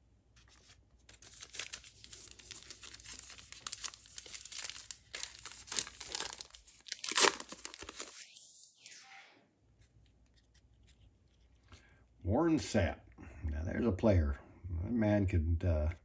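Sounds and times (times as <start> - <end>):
foil wrapper crinkling and tearing: 0.5 - 8.2.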